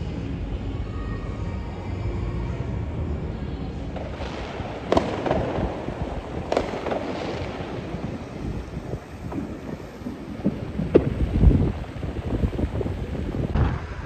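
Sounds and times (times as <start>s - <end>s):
low rumble: 0.0s - 14.0s
fireworks crackling: 2.9s - 14.0s
fireworks bangs: 3.9s - 14.0s.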